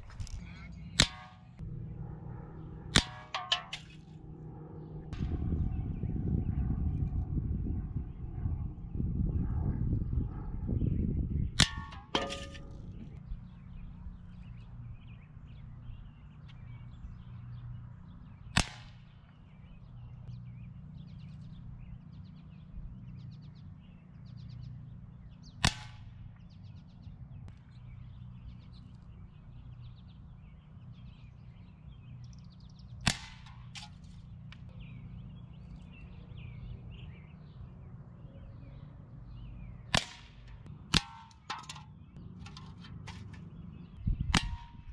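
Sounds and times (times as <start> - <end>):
pellets clanging on metal cans: 3.3 - 3.9, 11.9 - 12.7.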